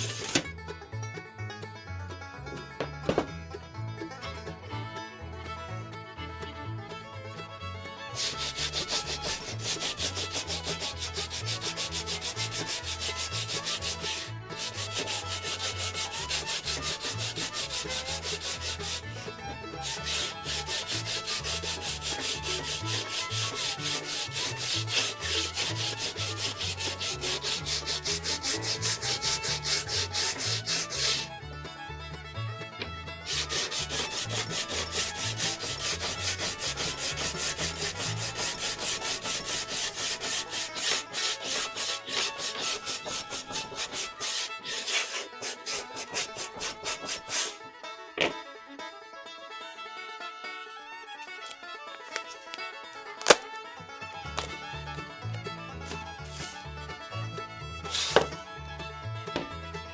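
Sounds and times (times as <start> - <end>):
sanding block rubbing wood: 0.0 - 0.4, 8.2 - 31.3, 33.2 - 47.6, 55.9 - 56.6, 57.8 - 58.4.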